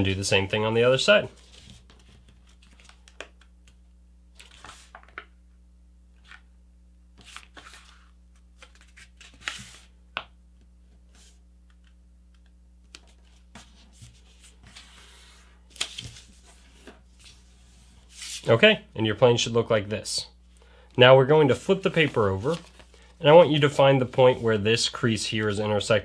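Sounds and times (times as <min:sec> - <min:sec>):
paper rustling: 0:01.3 - 0:03.5, 0:04.4 - 0:05.3, 0:07.2 - 0:09.9, 0:12.9 - 0:18.5, 0:21.5 - 0:25.7.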